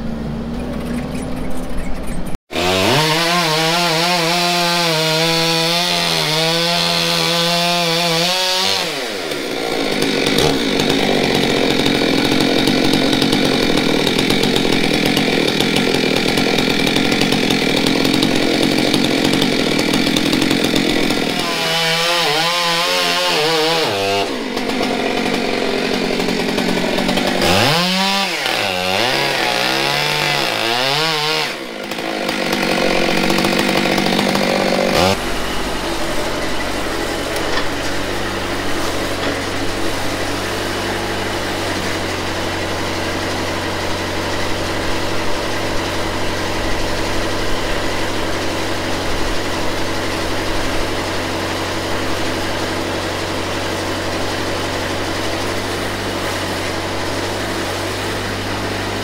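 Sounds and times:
chainsaw cutting log: 0:02.5 - 0:59.0.

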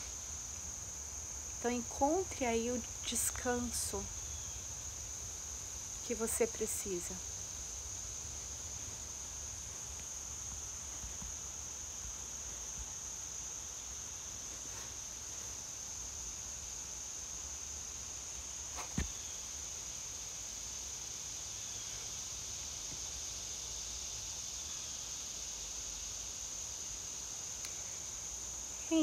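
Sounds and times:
insects singing: 0:00.0 - 0:29.0
thump: 0:18.8 - 0:19.2.

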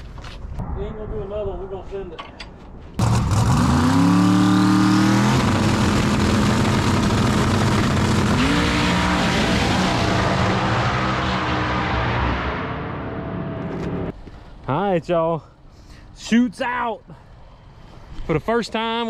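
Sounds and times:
drag car engine revving: 0:03.0 - 0:14.1.

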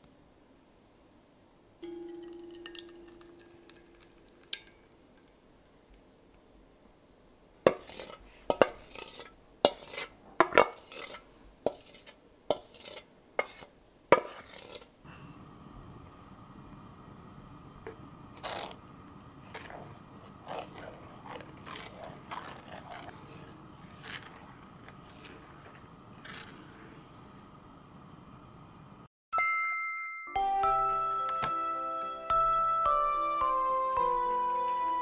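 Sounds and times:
metal bowl ringing: 0:01.8 - 0:04.9
utensils knocking on pot rim: 0:01.8 - 0:04.9
sugar pouring hiss: 0:01.8 - 0:05.4, 0:07.7 - 0:29.0.

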